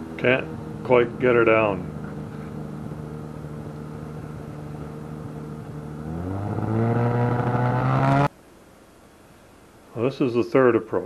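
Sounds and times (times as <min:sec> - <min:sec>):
aircraft engine and propeller drone: 0:00.0 - 0:06.8.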